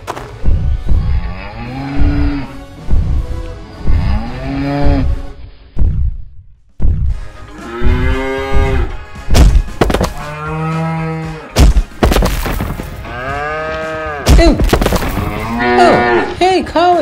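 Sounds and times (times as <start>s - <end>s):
heavy thuds: 4.8s - 10.2s
cow mooing: 15.2s - 16.4s.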